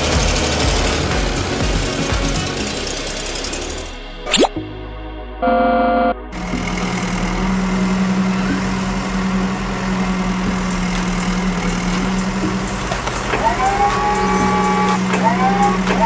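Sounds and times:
rising tones background music: 0:00.0 - 0:16.0
cartoon engine hum: 0:05.4 - 0:16.0.

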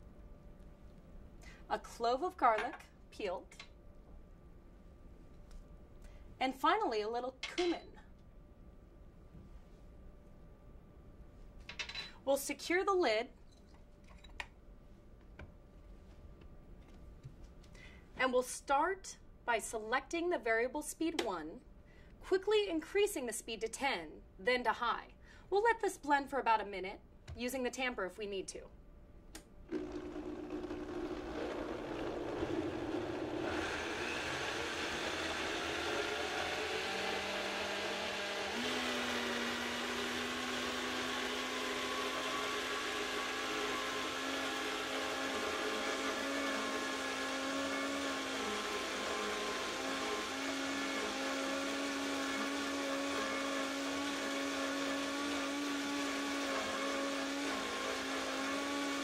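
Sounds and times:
blender motor running: 0:29.7 - 0:59.0.

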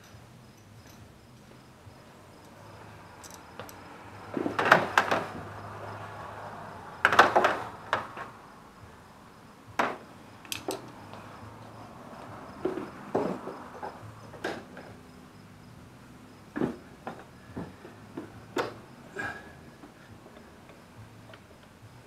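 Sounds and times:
hard objects knocking and clattering: 0:12.6 - 0:15.0.

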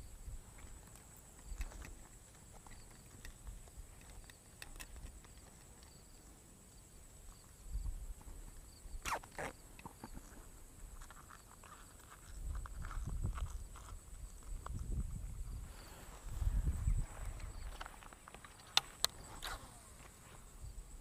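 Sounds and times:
small clicks and rustling: 0:00.5 - 0:06.4, 0:09.0 - 0:15.2, 0:17.2 - 0:20.4.

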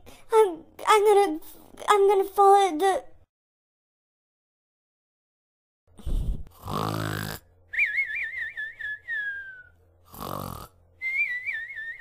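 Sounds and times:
cartoon snoring: 0:06.0 - 0:07.5, 0:10.0 - 0:10.8.

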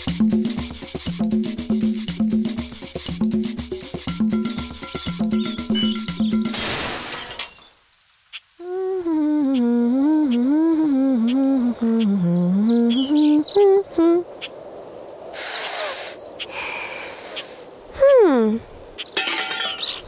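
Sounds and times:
person humming: 0:08.6 - 0:14.3
faint ticks: 0:09.1 - 0:13.1
burst of hiss: 0:15.4 - 0:17.7.

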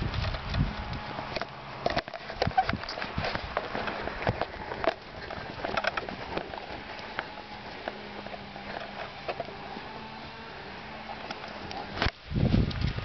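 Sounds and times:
handheld camera knocks and rustles: 0:00.0 - 0:10.2
footsteps on grass: 0:02.8 - 0:13.0.

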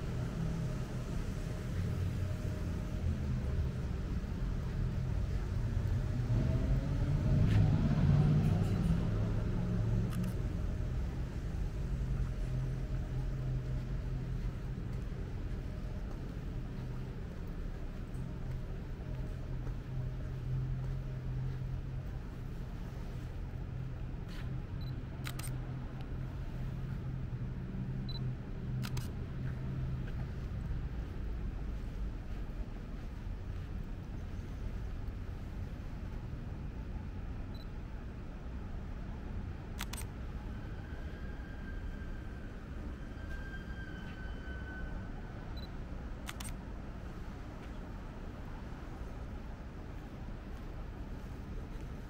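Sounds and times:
car passing: 0:00.0 - 0:17.3
steady low hum: 0:00.0 - 0:43.3.

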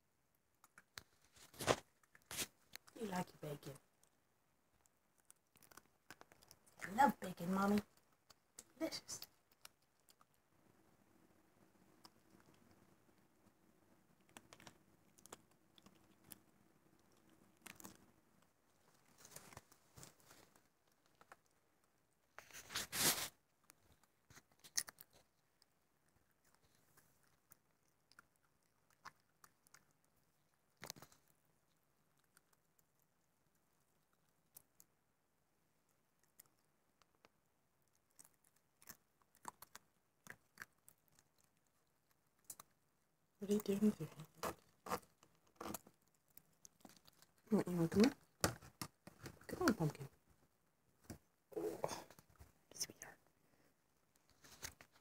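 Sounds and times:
soft clicks and scratches: 0:00.3 - 0:35.0, 0:35.8 - 0:43.0, 0:44.0 - 0:51.3, 0:52.0 - 0:55.0
raccoon chewing: 0:00.3 - 0:55.0
rustling scrape: 0:01.2 - 0:02.6, 0:22.4 - 0:23.4.

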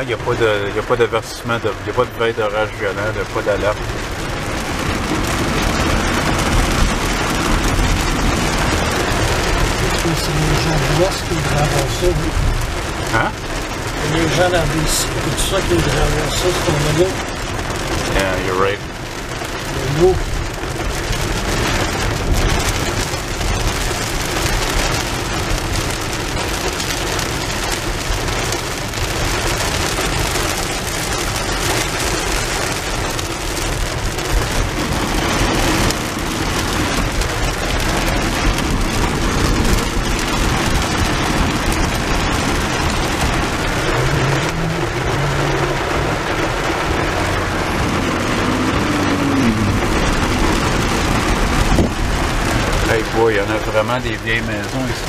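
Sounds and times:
heavy rain on car roof: 0:00.0 - 0:55.0.

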